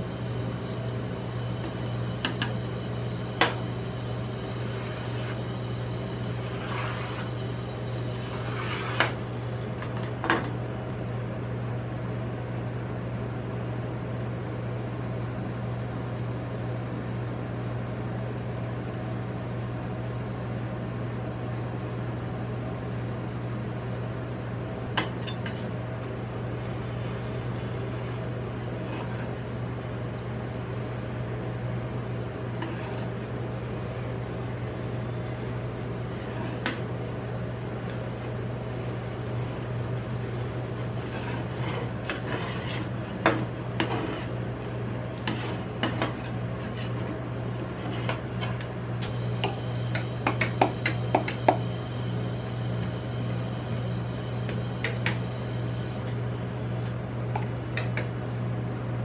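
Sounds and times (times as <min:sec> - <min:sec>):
compressor humming: 0:00.0 - 0:11.1, 0:24.5 - 0:59.0.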